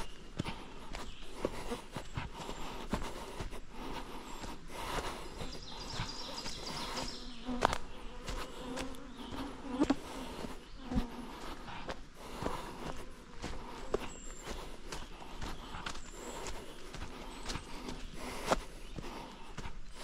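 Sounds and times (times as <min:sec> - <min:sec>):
crunching footsteps: 0:00.0 - 0:20.0
flying insect buzzing: 0:05.6 - 0:14.0.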